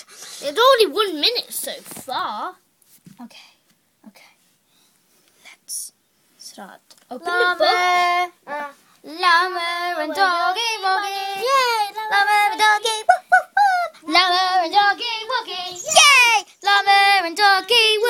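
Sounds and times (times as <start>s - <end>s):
child singing wordless tune: 7.1s - 13.2s, 14.0s - 18.0s.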